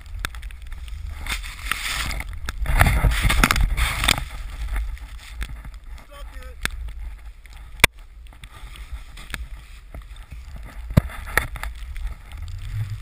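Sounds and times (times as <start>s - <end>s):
snowboard rushing through snow: 0.0s - 5.4s, 8.6s - 13.0s
wind buffeting microphone: 0.0s - 13.0s.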